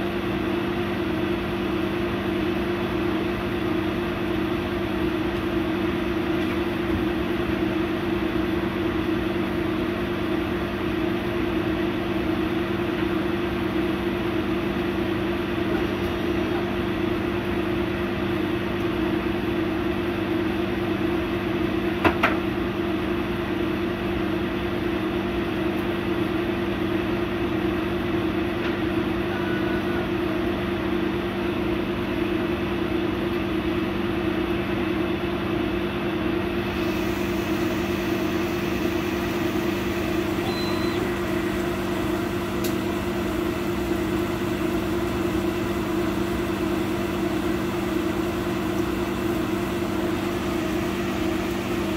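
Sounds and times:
laser cutter machine hum: 0.0s - 51.9s.

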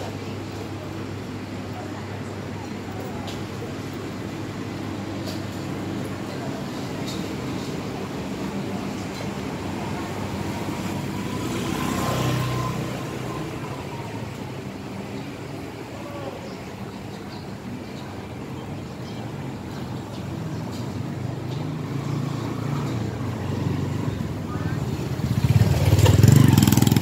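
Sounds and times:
traffic hum: 0.0s - 27.0s
motorbike passing close by: 10.8s - 13.4s, 21.8s - 27.0s.

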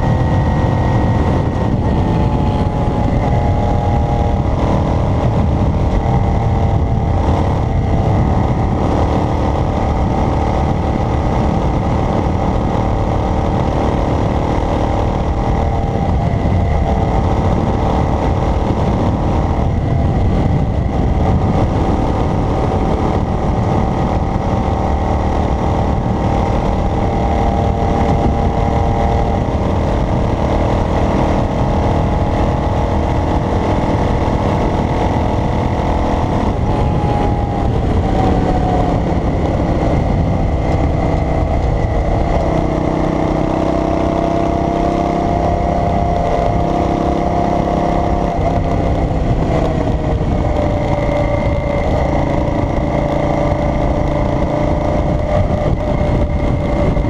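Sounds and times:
car engine running: 0.0s - 57.0s
road noise: 0.0s - 57.0s.

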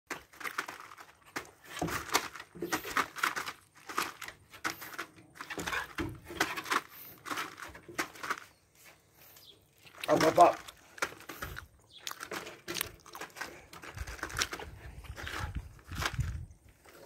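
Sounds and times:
dog claws scratching wooden fence: 1.1s - 8.3s.

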